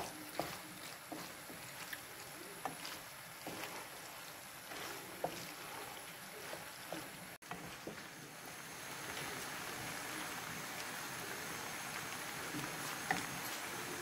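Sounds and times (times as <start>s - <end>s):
wooden spatula scraping pan: 0.0s - 8.2s
pasta sizzling in frying pan: 0.0s - 14.0s.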